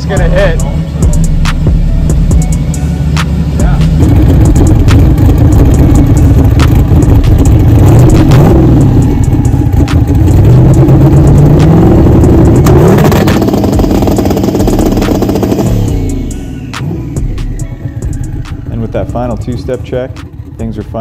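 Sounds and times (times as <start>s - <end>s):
car engine revving on limiter: 0.0s - 21.0s.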